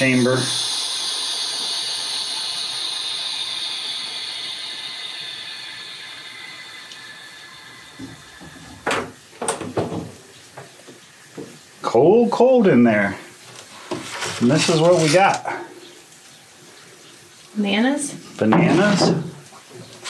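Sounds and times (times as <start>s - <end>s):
air hissing into vacuum chamber: 0.0s - 9.3s.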